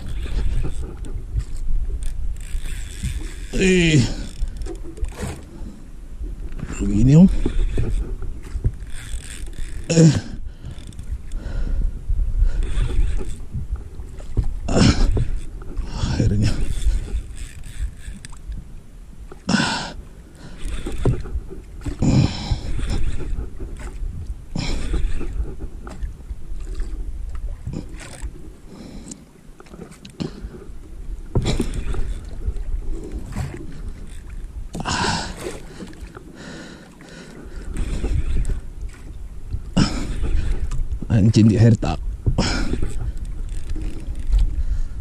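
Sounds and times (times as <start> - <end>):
wind rumble on microphone: 0.0 - 19.3, 20.4 - 28.6, 37.5 - 45.0
water sloshing against boat hull: 0.0 - 45.0.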